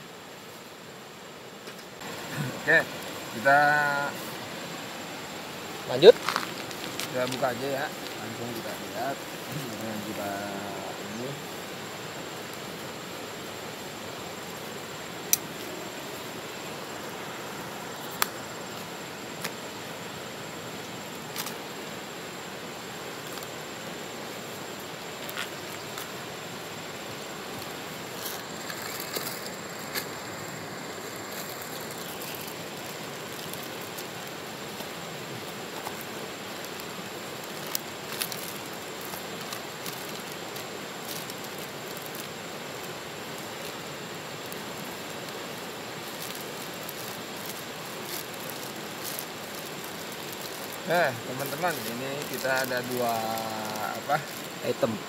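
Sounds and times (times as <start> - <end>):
steady hiss: 0.0 - 55.0
paper and plastic crinkling: 5.9 - 10.8, 27.6 - 30.2, 31.1 - 55.0.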